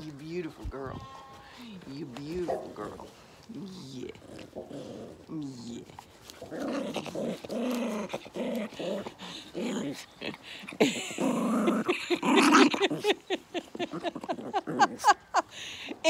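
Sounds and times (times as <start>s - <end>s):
dogs growling: 4.1s - 15.3s.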